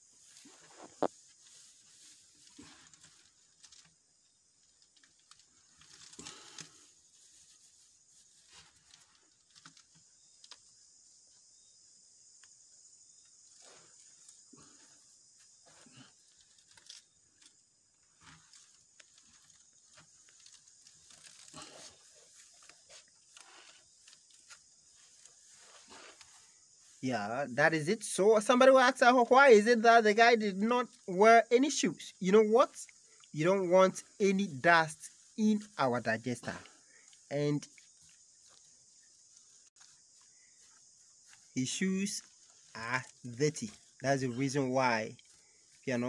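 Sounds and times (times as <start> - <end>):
dry fibre rustling and crackling: 0.2 - 10.8, 13.4 - 27.0.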